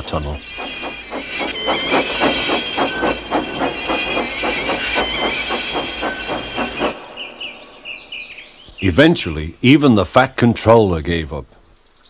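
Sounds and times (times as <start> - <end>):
hissing steam: 0.0 - 8.6
steam locomotive chuffing: 0.0 - 8.6.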